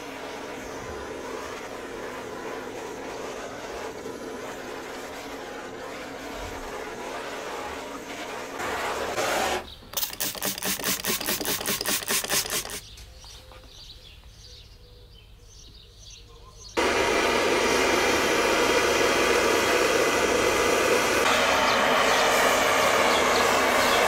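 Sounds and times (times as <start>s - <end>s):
blowtorch hissing: 0.0s - 12.8s, 16.8s - 24.0s
rapid short strokes: 0.0s - 12.9s.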